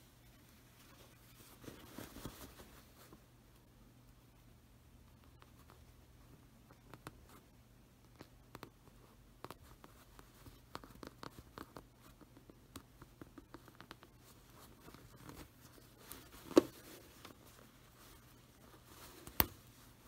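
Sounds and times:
fabric rustling: 0:00.1 - 0:03.3, 0:13.7 - 0:20.0
needle scratching and clicks: 0:06.7 - 0:20.0.

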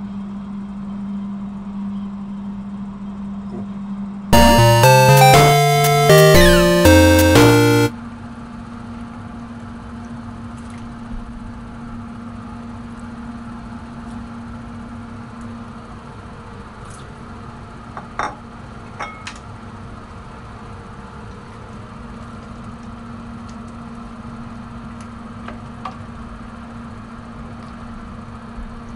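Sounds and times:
burst of music: 0:04.4 - 0:07.9.

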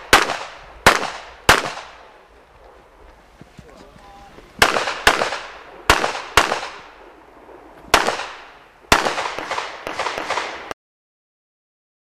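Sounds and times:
pistol shots echoing: 0:00.0 - 0:02.2, 0:04.6 - 0:10.7.

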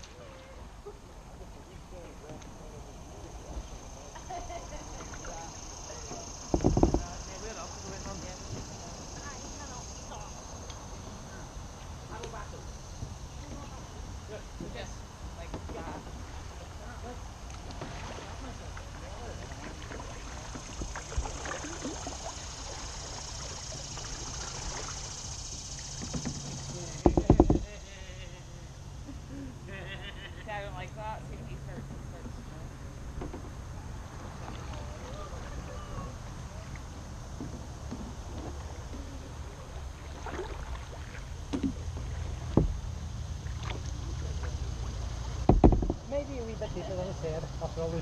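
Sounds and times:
kayak paddle strokes: 0:00.0 - 0:29.2, 0:31.9 - 0:48.0
water lapping against hull: 0:00.0 - 0:48.0
light knocks: 0:06.5 - 0:07.2, 0:26.0 - 0:27.7, 0:45.4 - 0:46.0
paddle splashing into water: 0:17.4 - 0:27.8, 0:34.1 - 0:46.1.

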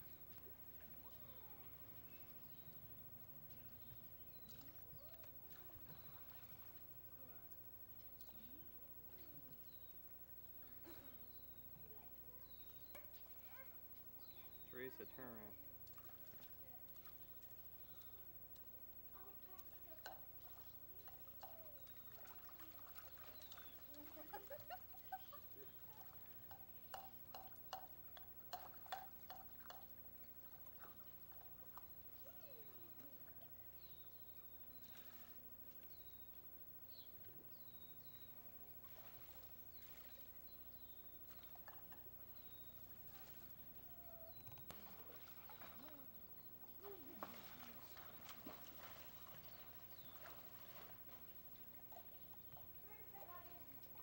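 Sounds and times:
faint indistinct voices: 0:00.0 - 0:28.0
faint gliding calls: 0:00.0 - 0:54.0
faint hum and hiss: 0:00.0 - 0:54.0
pool water splashing and dripping: 0:00.0 - 0:54.0.

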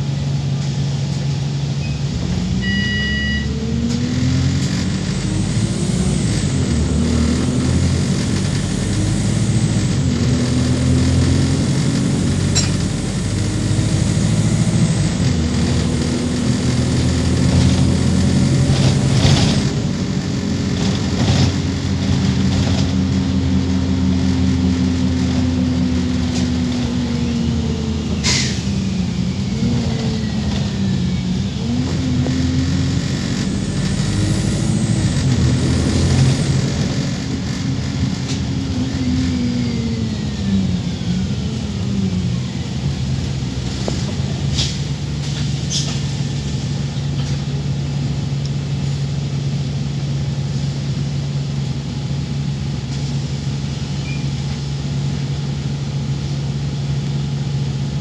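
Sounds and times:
bus diesel engine revving: 0:00.0 - 0:58.0
electronic beep: 0:01.8 - 0:03.6.

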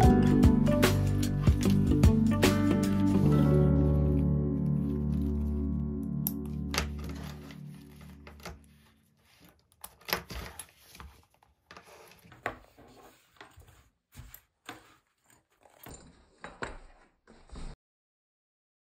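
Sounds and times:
leather and strap rustling: 0:02.9 - 0:05.6, 0:06.4 - 0:17.7.

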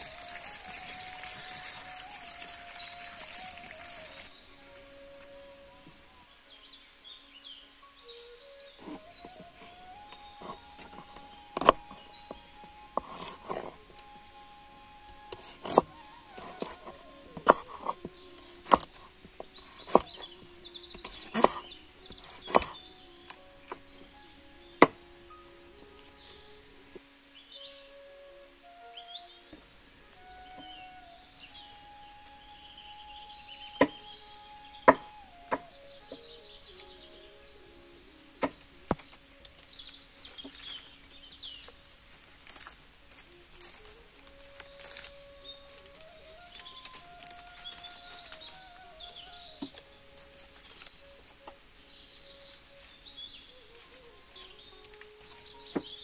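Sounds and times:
leaf strips rustling and crackling: 0:00.0 - 0:06.6, 0:08.1 - 0:56.0
birds chirping: 0:00.0 - 0:56.0
sharp snaps of leaves: 0:38.0 - 0:56.0.

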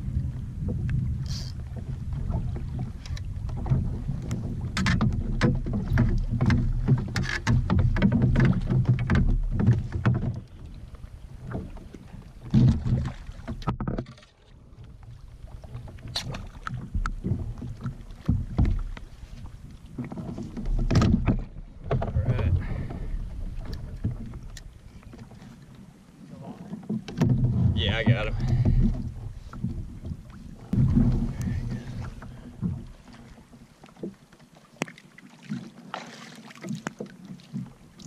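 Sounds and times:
wind on microphone: 0:00.0 - 0:13.4, 0:14.8 - 0:25.2, 0:27.2 - 0:33.4
water slapping a kayak: 0:00.0 - 0:38.0
sharp knocks and clicks: 0:03.0 - 0:10.6, 0:12.4 - 0:14.3, 0:16.0 - 0:19.1, 0:20.0 - 0:22.4.

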